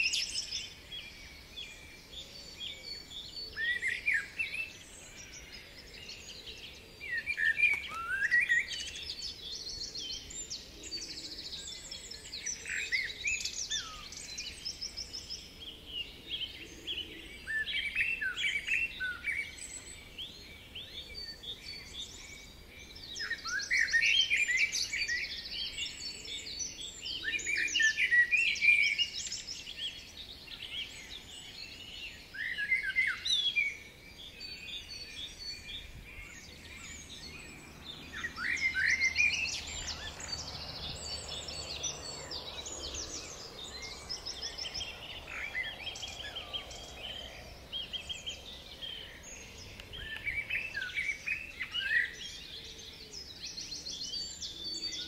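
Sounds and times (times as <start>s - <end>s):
songbirds singing and chirping: 0.0s - 55.0s.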